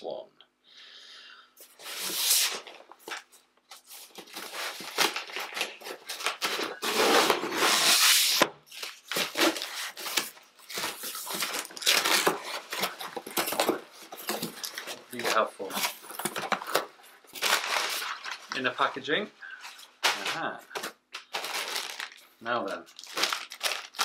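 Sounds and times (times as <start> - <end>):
cardboard rustling and scraping: 1.6 - 18.5
packing tape tearing: 3.8 - 18.6, 20.0 - 24.0.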